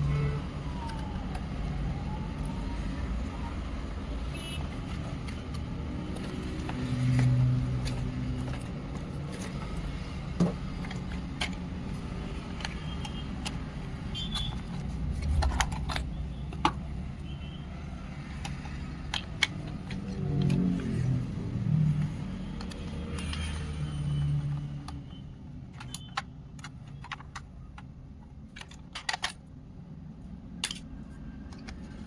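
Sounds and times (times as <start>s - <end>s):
clicks and knocks of handling: 4.7s - 17.2s, 18.1s - 23.6s, 24.2s - 29.6s, 30.5s - 32.0s.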